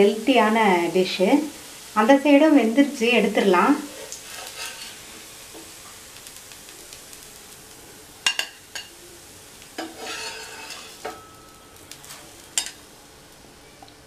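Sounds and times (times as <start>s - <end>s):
oil sizzling: 0.0s - 14.0s
steel spatula scraping and clicking: 4.1s - 5.0s, 9.8s - 11.2s.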